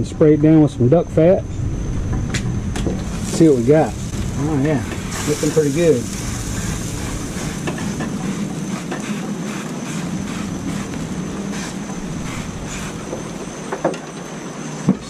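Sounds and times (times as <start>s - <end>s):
low hum: 0.0s - 15.0s
cooking spray hissing: 2.9s - 13.8s.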